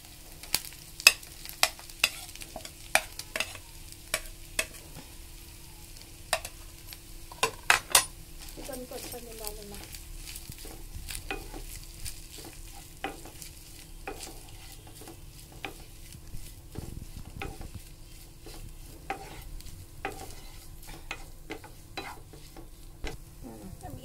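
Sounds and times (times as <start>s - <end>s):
hot oil sizzling: 0.0s - 24.0s
spatula scraping pan: 0.5s - 5.2s, 6.3s - 23.2s.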